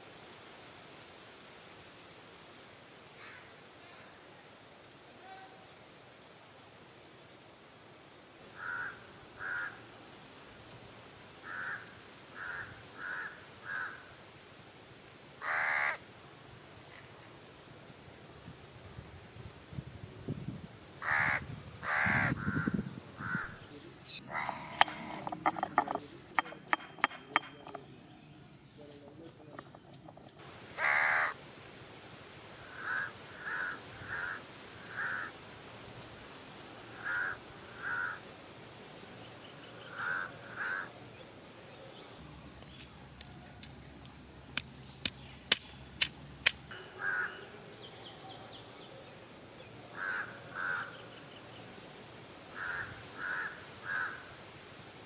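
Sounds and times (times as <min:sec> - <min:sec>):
crows cawing: 0:08.6 - 0:09.8, 0:11.4 - 0:14.1, 0:15.4 - 0:16.0, 0:21.0 - 0:27.8, 0:29.5 - 0:31.4, 0:32.6 - 0:35.3, 0:37.0 - 0:38.2, 0:39.9 - 0:40.9, 0:46.9 - 0:47.5, 0:49.9 - 0:51.0, 0:52.5 - 0:54.3
sharp clicks or knocks: 0:24.3 - 0:27.9, 0:29.2 - 0:30.4.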